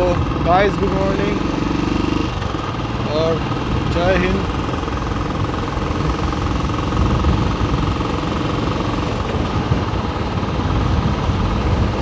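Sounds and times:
motorcycle engine running: 0.0 - 12.0
wind noise on microphone: 4.6 - 12.0.

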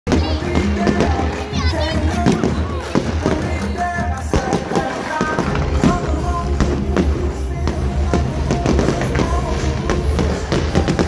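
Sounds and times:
fireworks cracking: 0.1 - 11.0
loud music with heavy bass: 0.1 - 11.0.

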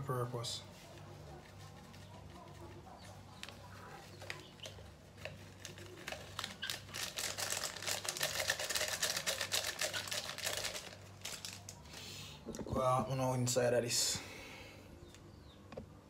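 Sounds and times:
plastic sachet crinkling: 1.0 - 12.0.

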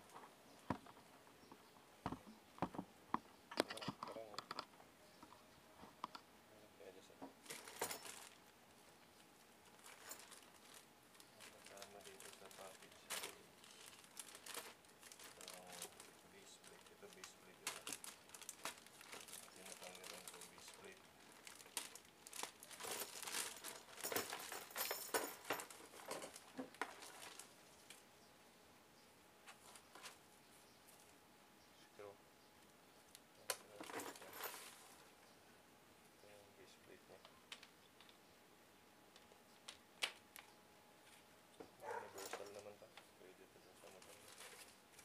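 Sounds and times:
plastic wrapping crinkling: 7.4 - 8.5, 9.6 - 28.0, 43.8 - 45.0.

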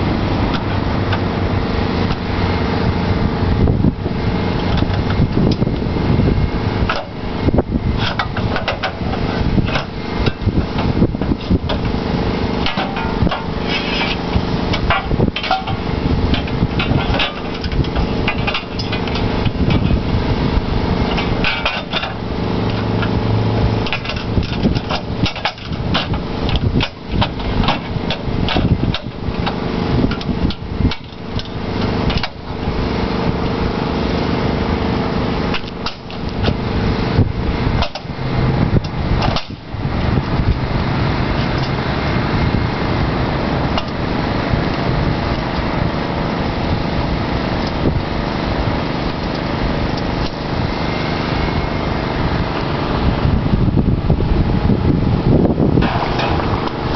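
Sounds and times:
steady hum: 0.0 - 56.9
steel parts clanking: 8.0 - 32.8, 35.5 - 53.0, 55.8 - 56.9.

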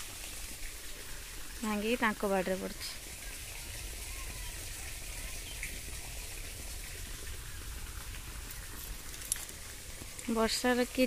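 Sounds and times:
light rain falling: 0.0 - 11.0.

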